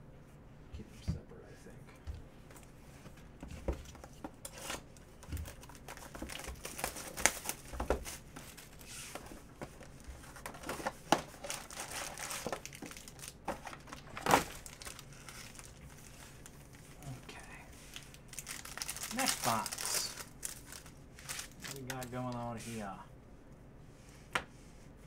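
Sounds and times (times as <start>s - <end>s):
foil packs crinkling and tearing: 4.5s - 8.9s, 9.8s - 17.2s, 17.9s - 22.6s.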